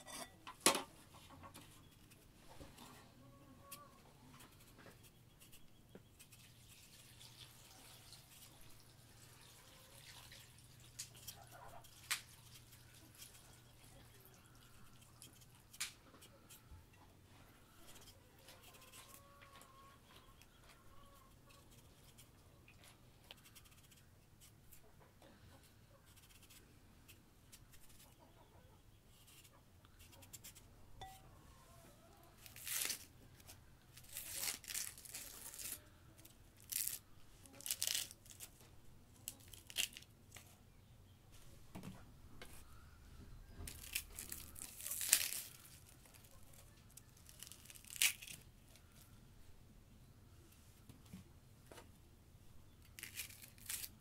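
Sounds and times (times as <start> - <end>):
onion skin crackling and tearing: 10.9 - 13.5, 14.7 - 16.0, 23.3 - 24.5, 32.4 - 40.6, 43.6 - 48.8, 52.8 - 54.0.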